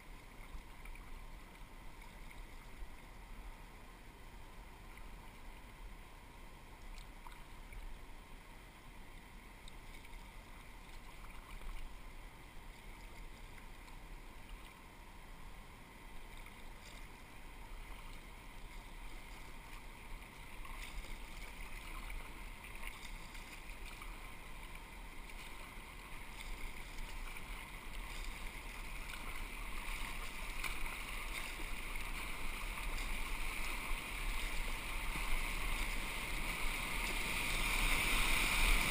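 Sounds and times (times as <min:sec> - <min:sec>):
water splashing against kayak: 0:09.6 - 0:15.0, 0:16.1 - 0:38.9
whitewater rapids rushing: 0:28.1 - 0:38.9.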